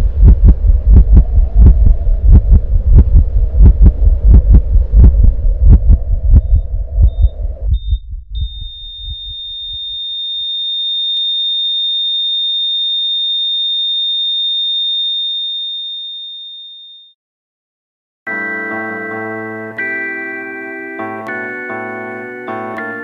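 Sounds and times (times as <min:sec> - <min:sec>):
heartbeat thumping: 0:00.0 - 0:10.1
high-pitched sine tone: 0:00.3 - 0:12.3.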